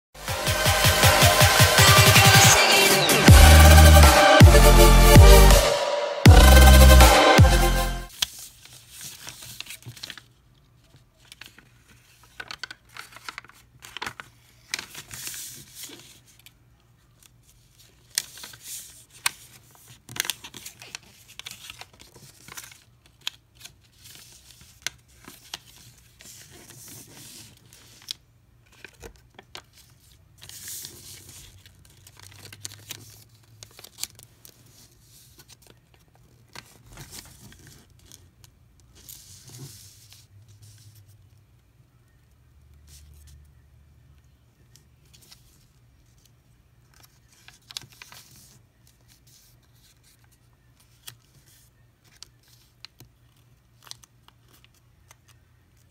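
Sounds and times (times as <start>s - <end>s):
paper being folded and creased: 8.1s - 41.0s, 45.0s - 55.9s.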